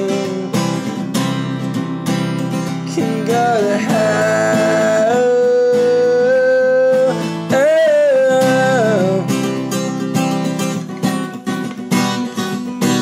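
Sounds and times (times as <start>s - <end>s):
man singing long notes: 0.0s - 1.0s, 2.8s - 9.4s
acoustic guitar strumming: 0.0s - 13.0s.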